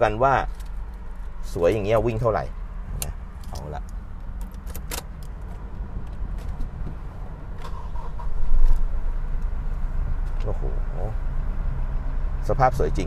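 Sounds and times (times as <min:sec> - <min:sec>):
diesel engine starting and running: 0:00.0 - 0:13.0
ignition key clicks: 0:03.0 - 0:06.6.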